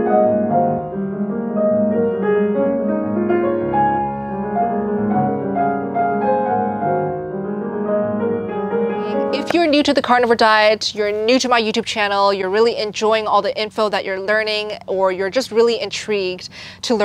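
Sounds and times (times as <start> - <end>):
solo piano music: 0.0 - 10.8.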